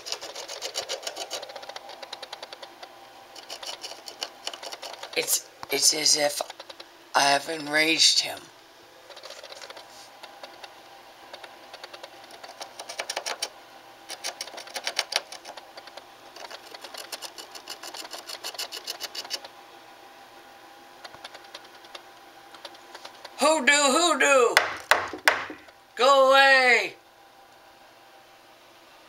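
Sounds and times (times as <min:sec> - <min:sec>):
animal scratching inside wall: 0:00.0 - 0:05.4, 0:09.0 - 0:19.6, 0:21.0 - 0:23.4.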